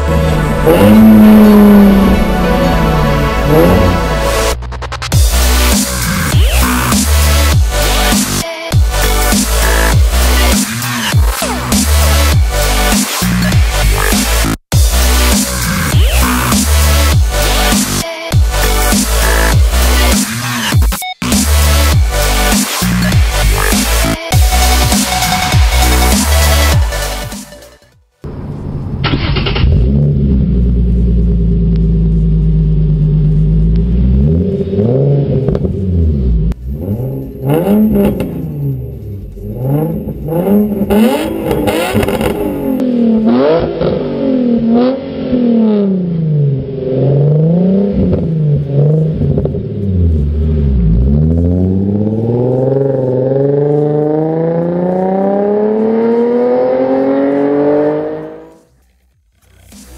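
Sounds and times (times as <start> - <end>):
car accelerating away: 0.0 - 4.1, 29.1 - 58.7
car engine idling and revving: 0.0 - 59.9.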